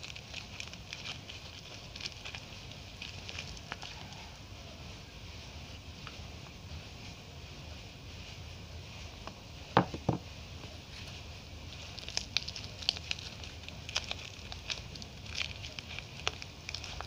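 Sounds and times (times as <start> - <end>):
soap wrapper crinkling: 0.0 - 4.1, 11.7 - 17.0
knocks: 9.8 - 10.2.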